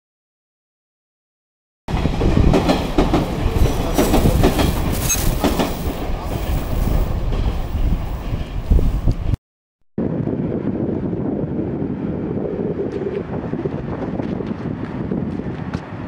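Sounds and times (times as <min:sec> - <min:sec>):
train wheels clattering: 0:02.4 - 0:07.7
train wheel squeal: 0:05.0 - 0:05.5.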